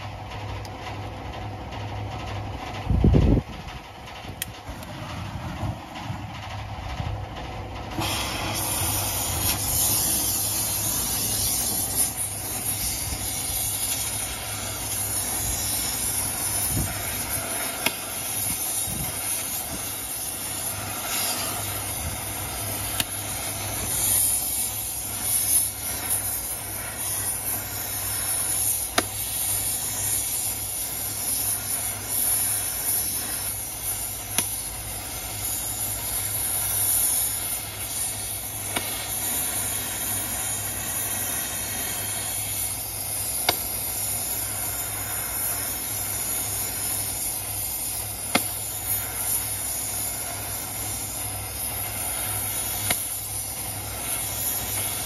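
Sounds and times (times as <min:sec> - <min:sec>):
torch flame hissing: 0:04.1 - 0:55.0
torch lighting pop: 0:16.2 - 0:20.0, 0:22.2 - 0:23.3, 0:34.3 - 0:34.7, 0:38.6 - 0:39.5, 0:43.4 - 0:43.8, 0:48.2 - 0:49.0, 0:52.7 - 0:53.2.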